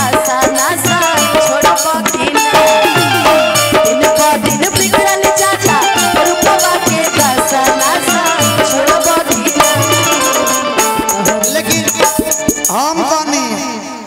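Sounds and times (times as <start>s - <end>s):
drum and shaker rhythm: 0.0s - 13.4s
folk band melody: 2.2s - 4.4s, 5.6s - 13.6s.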